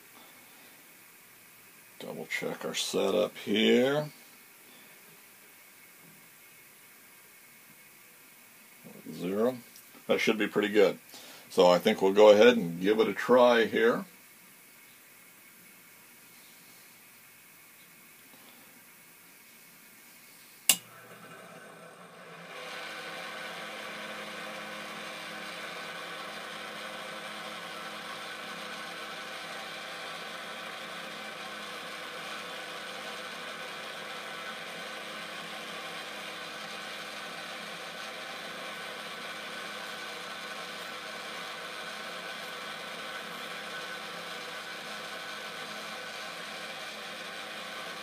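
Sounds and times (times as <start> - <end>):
switch click: 20.7 - 20.9
grinder motor humming and whining: 20.7 - 48.0.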